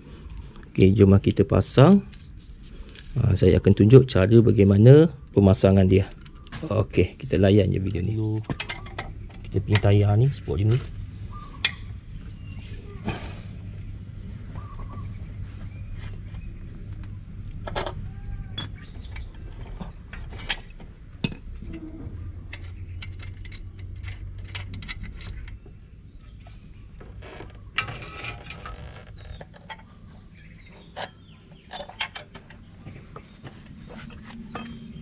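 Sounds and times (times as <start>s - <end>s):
low hum: 0.0s - 29.3s
animal calls: 14.4s - 15.3s
hand tools clinking on metal: 18.6s - 20.6s, 34.1s - 35.0s.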